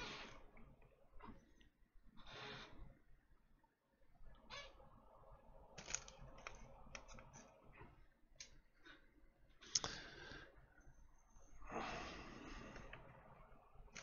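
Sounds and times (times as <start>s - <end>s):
small clicks and taps of tools: 9.6s - 10.0s.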